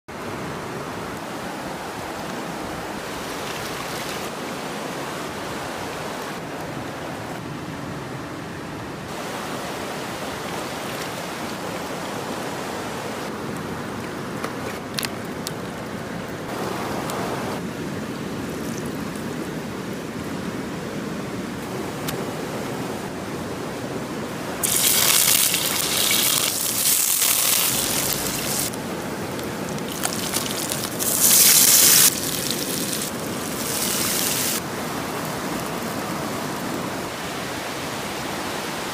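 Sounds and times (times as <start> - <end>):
stream water rushing over rocks: 0.1 - 7.2, 9.1 - 20.4, 21.3 - 38.9
fish frying in hot oil: 24.6 - 28.7, 29.8 - 34.6.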